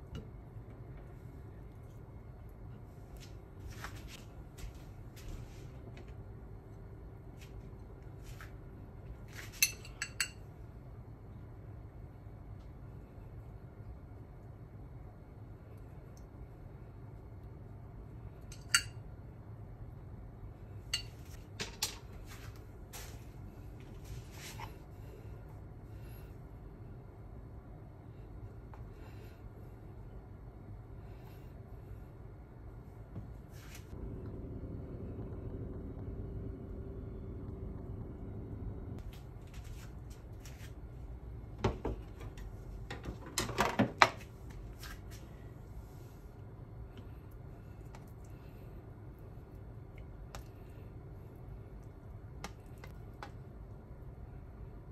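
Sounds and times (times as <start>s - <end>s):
low steady hum: 0.0s - 54.9s
spoon clinking on dish: 9.6s - 10.4s.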